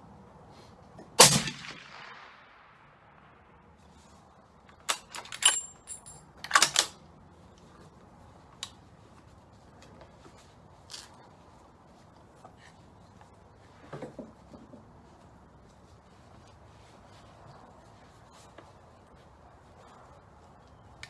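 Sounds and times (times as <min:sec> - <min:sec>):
rifle bolt metallic clacks: 0:04.8 - 0:07.0.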